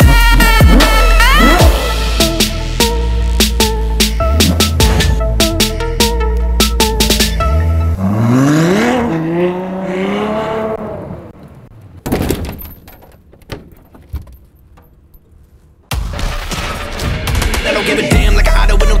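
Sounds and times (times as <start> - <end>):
sports car engine revving: 0.1 - 2.0, 7.4 - 11.3.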